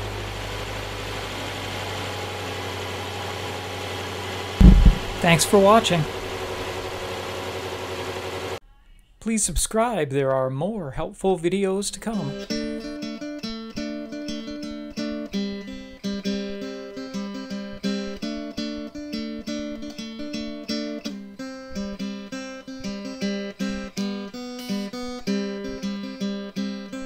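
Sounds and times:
acoustic guitar plucking: 4.6s - 6.7s, 12.3s - 27.0s.

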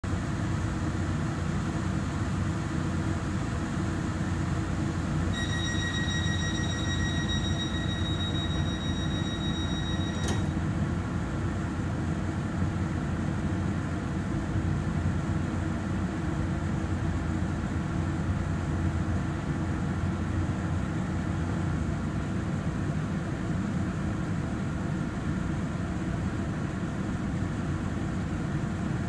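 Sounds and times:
train low hum: 0.0s - 29.0s
high electronic beep: 5.4s - 10.6s.

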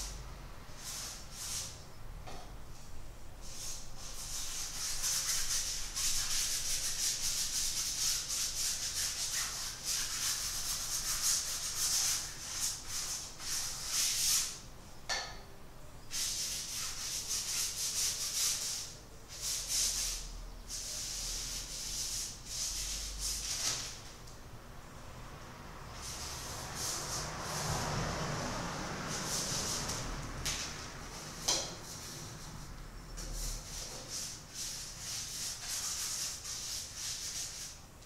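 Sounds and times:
paintbrush scrubbing on canvas: 3.4s - 14.6s, 16.1s - 24.0s, 25.9s - 27.9s, 28.7s - 37.8s.

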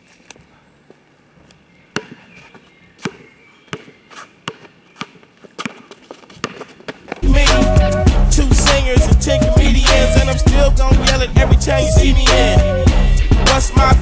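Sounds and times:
basketball bouncing on asphalt: 1.9s - 2.3s, 3.0s - 7.2s.

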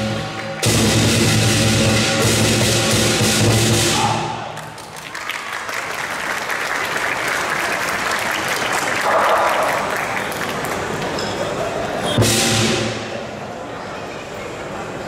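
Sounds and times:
drum cymbals and gong band: 0.0s - 4.3s, 12.1s - 13.3s
audience applause: 4.5s - 11.6s.

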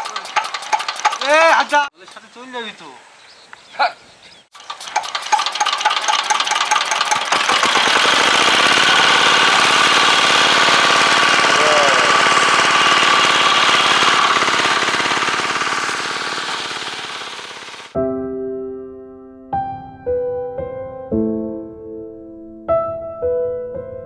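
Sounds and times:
small diesel engine starting: 0.0s - 2.3s, 4.5s - 18.0s.

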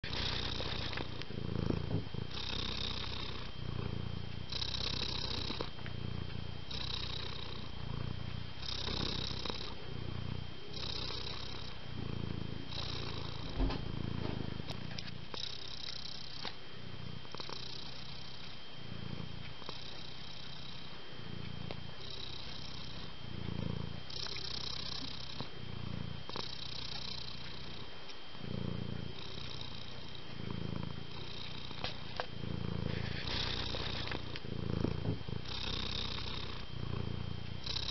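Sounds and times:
cat purring: 0.0s - 37.9s
soft thump: 13.5s - 14.5s.

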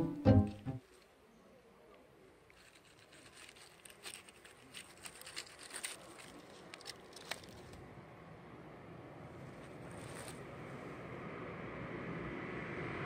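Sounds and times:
crackles in dry leaf litter: 1.9s - 7.9s, 9.3s - 10.7s.

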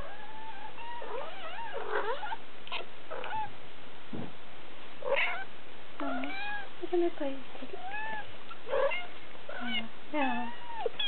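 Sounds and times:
kittens mewing: 5.0s - 6.7s, 7.8s - 11.0s.

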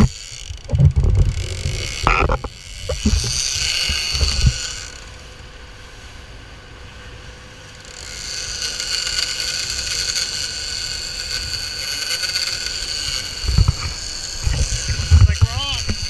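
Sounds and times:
boat diesel engine running: 0.0s - 5.2s
high whine: 0.0s - 5.4s, 13.2s - 16.0s
wind: 0.0s - 16.0s.

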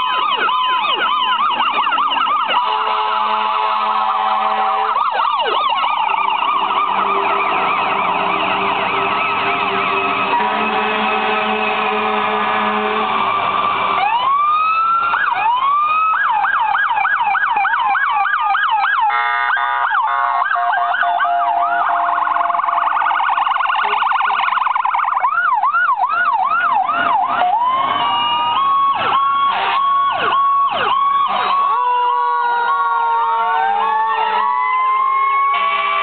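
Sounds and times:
emergency vehicle sirens: 0.0s - 36.0s
vehicle horn blast: 2.6s - 5.0s, 7.0s - 13.5s, 19.1s - 22.1s, 29.4s - 30.0s, 35.4s - 36.0s.

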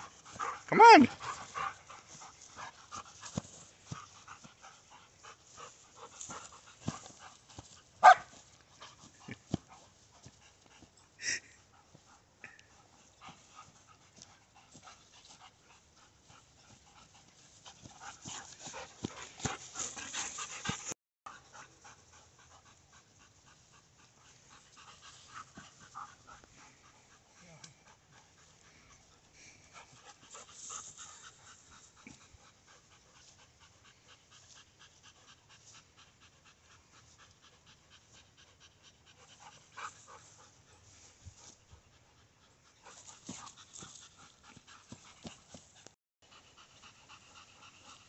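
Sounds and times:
dogs panting: 0.0s - 48.0s.

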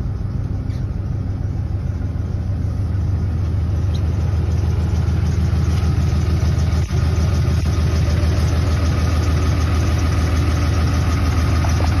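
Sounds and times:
diesel engine idling: 0.0s - 12.0s.

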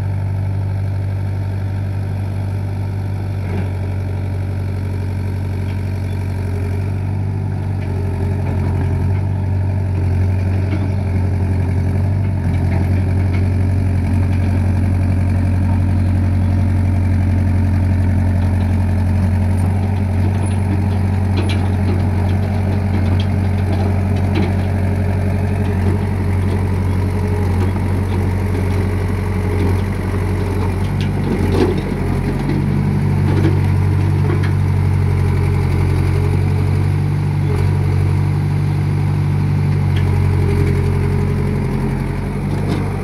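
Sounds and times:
excavator diesel engine running: 0.0s - 43.0s.

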